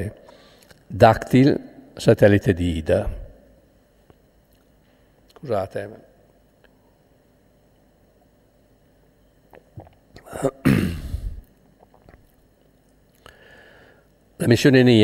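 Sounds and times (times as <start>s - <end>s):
man coughing: 10.2s - 11.4s.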